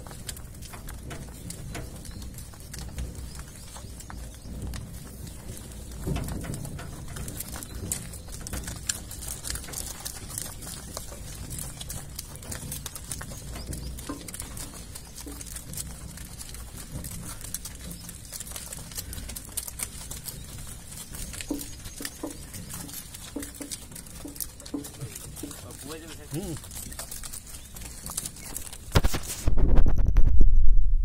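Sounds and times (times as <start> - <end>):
wooden cart knocks and clicks: 0.0 - 29.6
cart wheels rumbling: 0.0 - 30.0.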